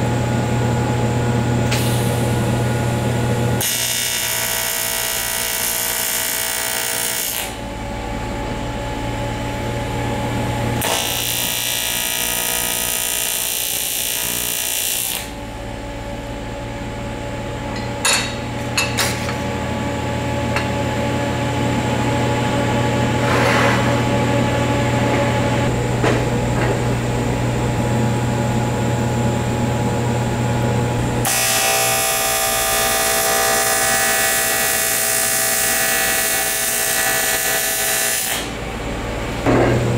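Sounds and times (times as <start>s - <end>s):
steady low hum: 0.0s - 3.6s, 7.1s - 10.9s, 15.2s - 31.3s, 38.5s - 39.9s
welding arc buzzing: 1.6s - 8.3s, 9.0s - 16.6s, 17.4s - 38.6s.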